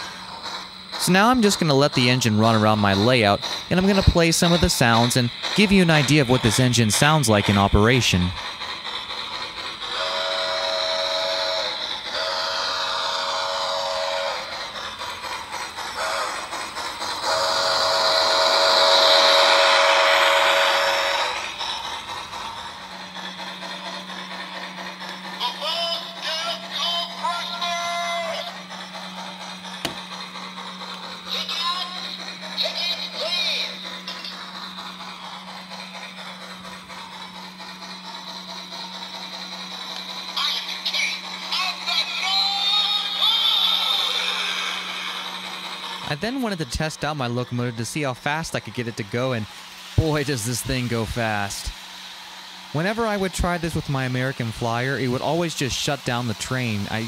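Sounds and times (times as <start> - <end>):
steam hiss: 0.0 - 57.0
chime steam whistle: 10.0 - 14.5.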